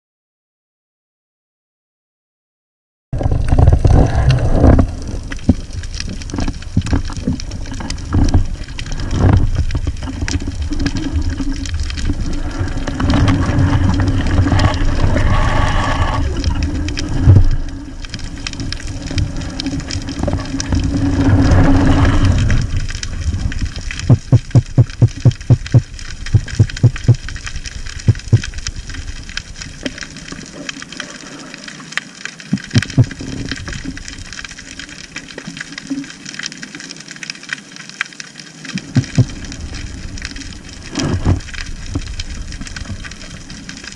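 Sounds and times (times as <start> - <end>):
underwater rumble: 3.2 - 43.9
quick regular thumps: 24.0 - 27.2, 28.1 - 28.5, 32.8 - 33.2
small clicks and knocks: 31.9 - 34.5.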